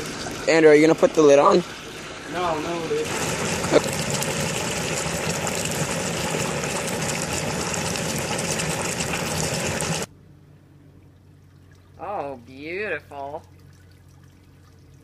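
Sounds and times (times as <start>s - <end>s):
hot oil bubbling and sizzling: 0.0s - 10.1s.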